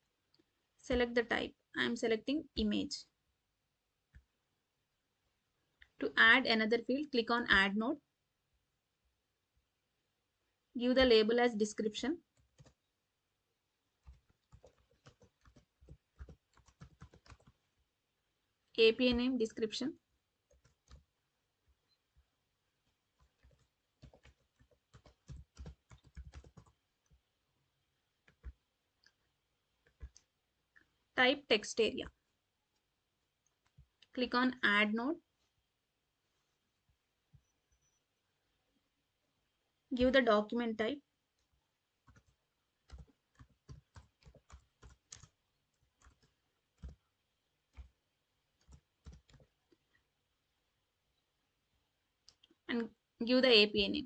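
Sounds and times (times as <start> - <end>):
keyboard keys clicking: 14.0 - 17.6, 23.2 - 27.2, 29.9 - 30.3, 42.1 - 45.4.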